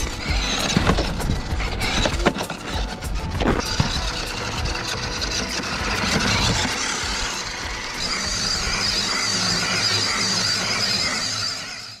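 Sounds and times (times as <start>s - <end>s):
small electric motor and gears whining: 0.0s - 12.0s.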